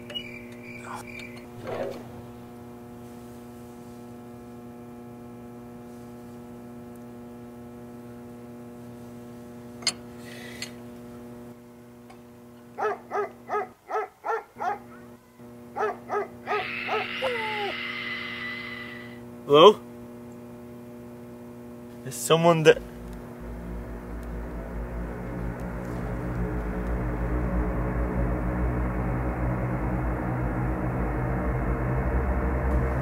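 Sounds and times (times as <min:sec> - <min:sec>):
low electrical hum: 0:00.0 - 0:33.0
dog barking: 0:12.8 - 0:15.1, 0:15.8 - 0:17.2.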